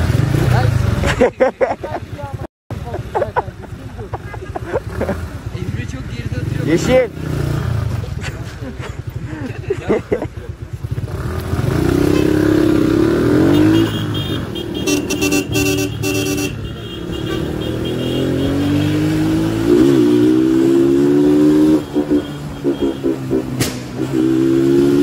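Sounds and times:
motorcycle engine accelerating: 4.4 - 9.4, 10.1 - 25.0.

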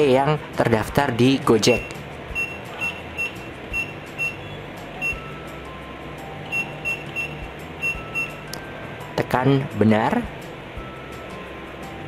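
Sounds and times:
keypad beeps: 1.7 - 5.4, 6.5 - 8.4.

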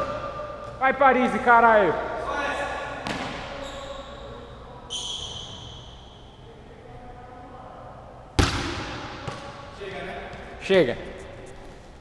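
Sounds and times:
basketball thud: 8.4 - 9.4.

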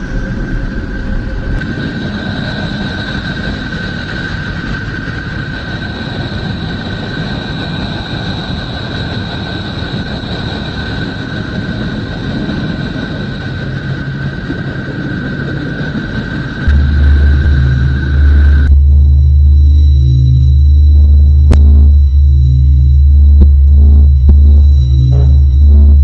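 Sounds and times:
high steady whining tones: 0.0 - 26.0
low rumbling rushing drone: 0.0 - 26.0.

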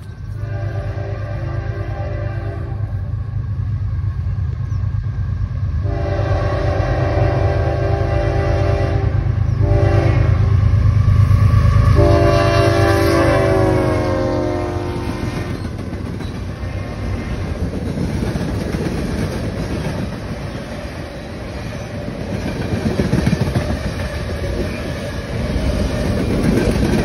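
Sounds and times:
locomotive air horn: 0.3 - 3.1, 5.8 - 10.6, 11.8 - 15.5.

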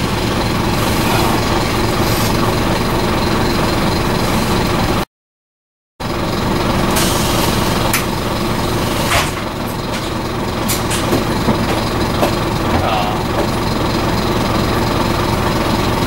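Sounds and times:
road noise: 0.0 - 5.0, 6.0 - 16.0
bus diesel engine running: 0.0 - 5.1, 6.0 - 16.0
interior fittings rattling: 9.0 - 14.6.

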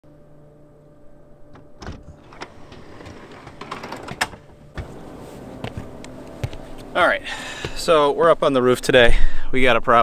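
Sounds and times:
metal roof hatch clicks and clanks: 1.5 - 5.0.

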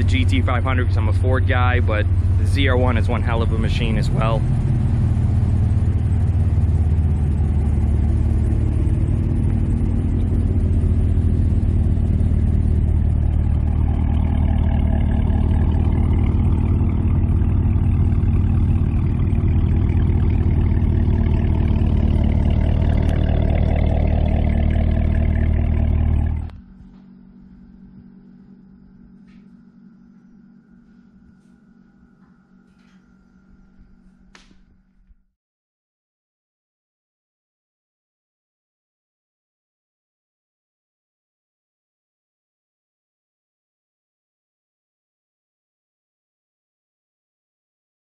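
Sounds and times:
car engines idling: 0.0 - 35.0.

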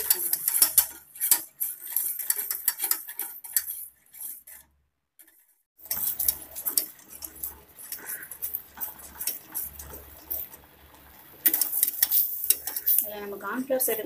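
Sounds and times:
whisk scraping a metal saucepan: 0.0 - 14.0.

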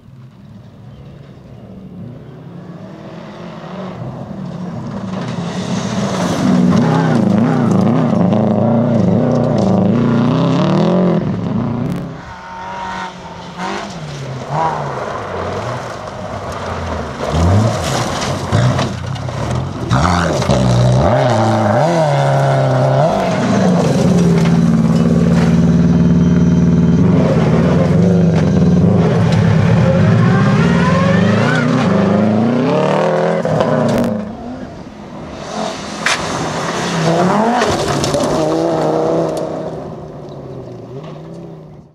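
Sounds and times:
rally car engines revving: 0.0 - 41.9
gravel spraying from tyres: 13.2 - 19.8, 35.2 - 39.6.

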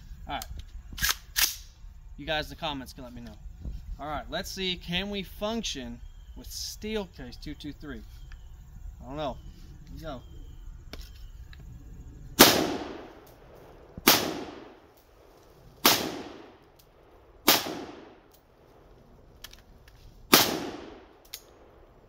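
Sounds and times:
rifle shots with echo: 12.4 - 18.3, 20.3 - 21.9.

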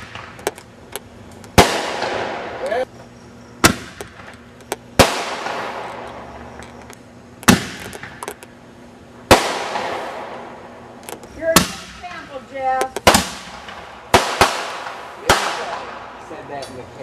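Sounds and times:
fireworks bangs: 0.0 - 0.7, 1.5 - 2.8, 3.6 - 6.5, 7.4 - 8.4, 9.2 - 16.4.

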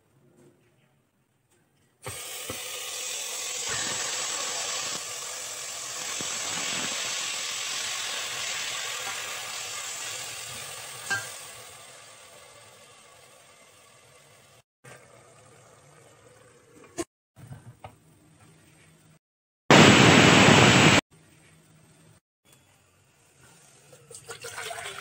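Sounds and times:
meat sizzling in a pot: 2.0 - 14.6.

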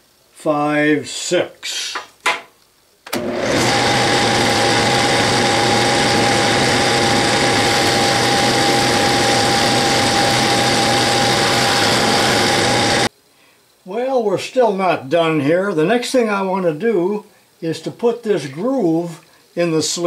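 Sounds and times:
high whine of cutting tool: 3.2 - 13.1
metal lathe running: 3.2 - 13.1.

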